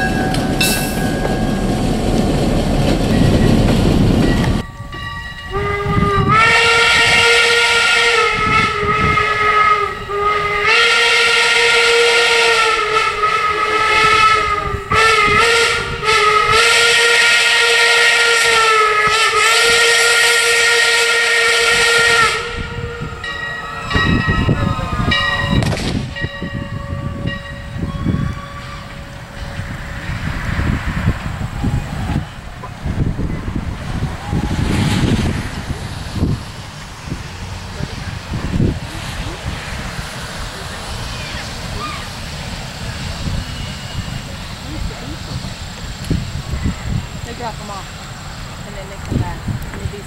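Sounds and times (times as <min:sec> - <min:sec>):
steam locomotive whistle: 0:05.4 - 0:30.2.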